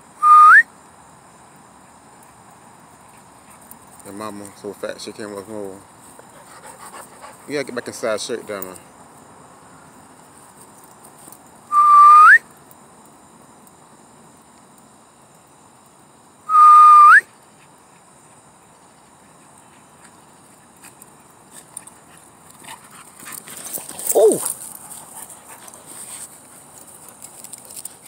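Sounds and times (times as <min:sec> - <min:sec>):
upward-flicking whistles: 0:00.2 - 0:00.7, 0:11.7 - 0:12.5, 0:16.5 - 0:17.3.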